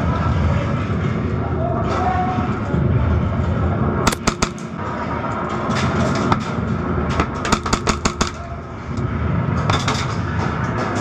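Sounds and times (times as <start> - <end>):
low background rumble: 0.0 - 11.0
airsoft guns firing: 4.1 - 4.7, 7.4 - 8.4.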